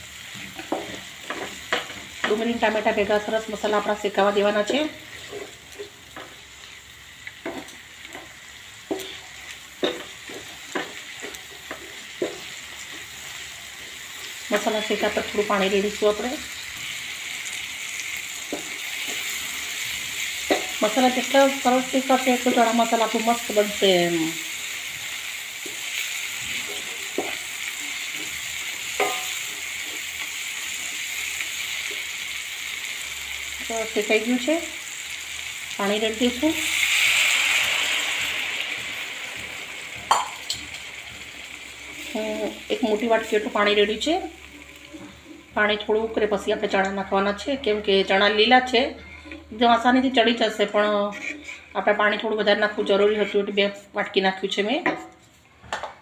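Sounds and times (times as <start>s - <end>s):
masala sizzling in oil: 0.0s - 56.0s
spatula scraping pan: 4.6s - 6.8s, 50.7s - 51.9s, 52.8s - 53.6s
wooden spatula scraping pan: 50.8s - 51.8s.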